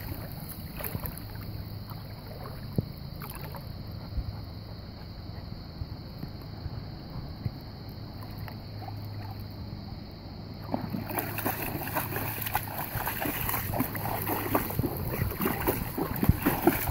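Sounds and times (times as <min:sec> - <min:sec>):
dog splashing through water: 0:00.0 - 0:03.6, 0:10.6 - 0:16.9.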